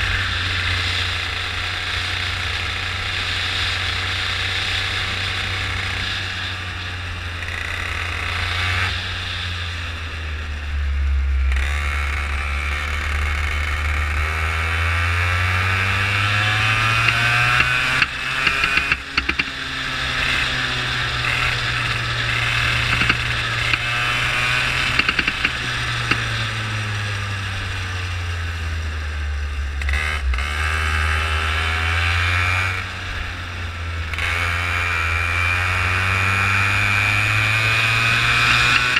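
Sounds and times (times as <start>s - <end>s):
go-kart engine accelerating: 0.0s - 38.9s.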